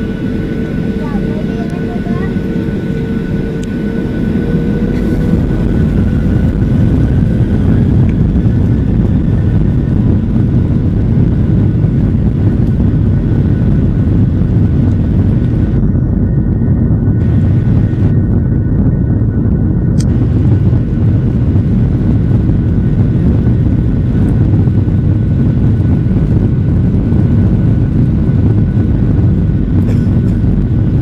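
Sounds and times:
jet engines rumbling at takeoff: 0.0s - 31.0s.

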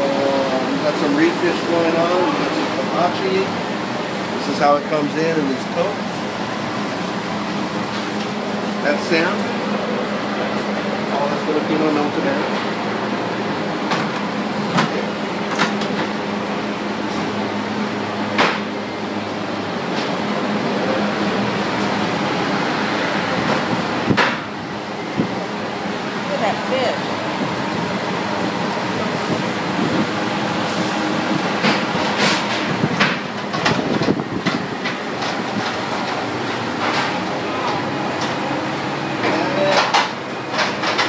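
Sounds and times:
machinery humming drone: 0.0s - 41.0s.

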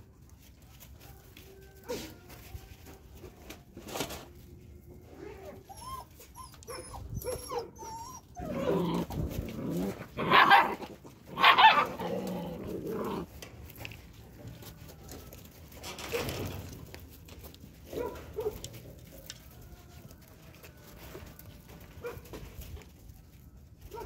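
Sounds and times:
puppies whining: 5.0s - 13.3s
dog barking: 17.9s - 18.6s.

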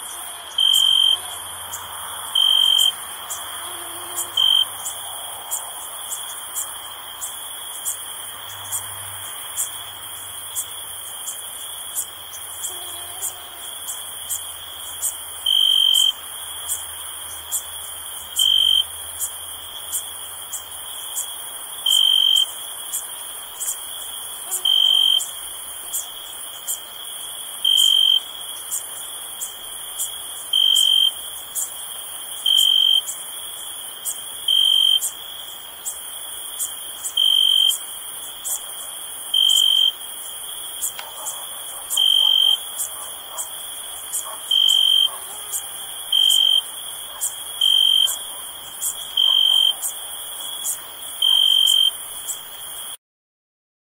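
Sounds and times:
crickets chirping: 0.0s - 53.0s
faint sharp high ticks: 40.9s - 41.4s.

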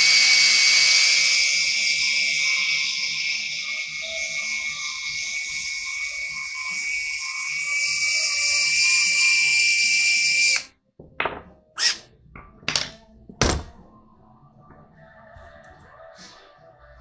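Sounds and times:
power tool motor whining: 0.0s - 10.7s
hard parts knocking on bench: 11.0s - 11.6s.

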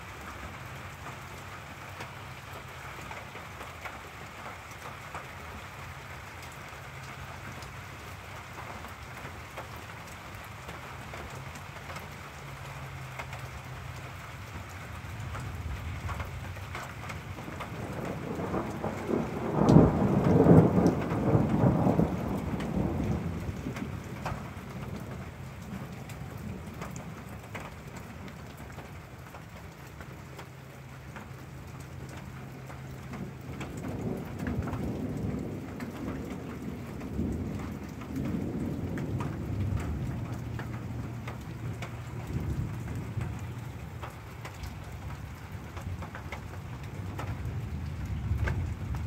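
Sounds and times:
steady rain falling: 0.0s - 49.0s
rolling thunder: 17.3s - 27.4s, 33.0s - 49.0s.

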